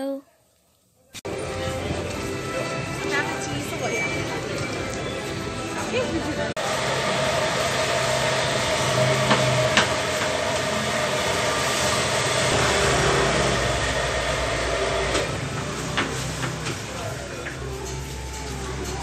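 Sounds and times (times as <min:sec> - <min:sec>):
steady mechanical hum: 0:06.6 - 0:19.0.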